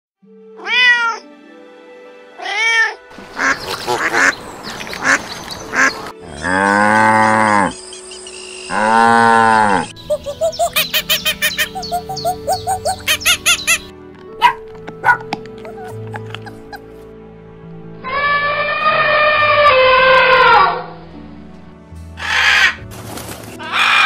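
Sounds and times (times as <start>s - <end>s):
cat meowing: 0.6s - 1.2s
rough animal calls: 3.4s - 7.9s, 8.7s - 17.0s
cow mooing: 6.2s - 7.8s, 8.7s - 9.9s.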